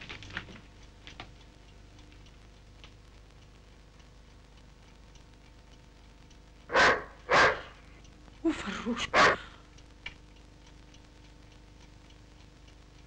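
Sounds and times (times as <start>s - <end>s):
dog barking: 6.7s - 7.8s, 9.1s - 9.5s.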